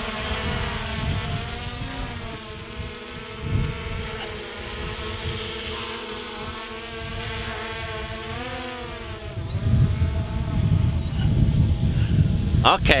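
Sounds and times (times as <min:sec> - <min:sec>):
drone buzzing whine: 0:00.0 - 0:13.0
wind rumbling on microphone: 0:00.0 - 0:13.0.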